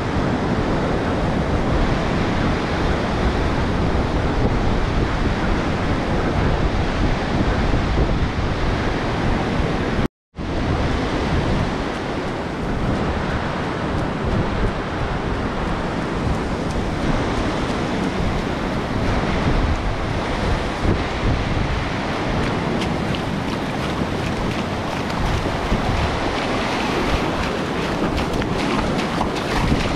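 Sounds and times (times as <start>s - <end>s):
wind buffeting microphone: 0.0s - 29.9s
surf breaking on beach: 21.8s - 29.9s.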